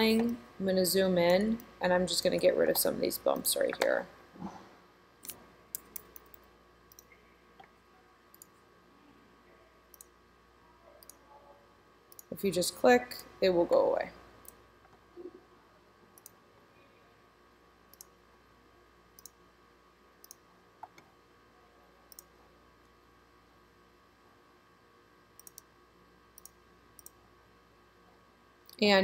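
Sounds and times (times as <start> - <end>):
faint room tone: 0.0 - 29.0
computer mouse clicks: 5.2 - 7.7, 8.3 - 8.5, 9.9 - 10.1, 16.2 - 16.4, 17.9 - 18.1, 19.2 - 19.4, 20.2 - 21.1, 22.1 - 22.3, 25.4 - 25.7, 26.4 - 27.2.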